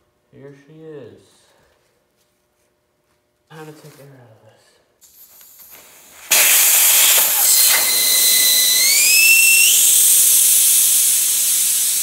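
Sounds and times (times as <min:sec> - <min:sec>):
air hissing from tire valve: 0:05.0 - 0:12.0.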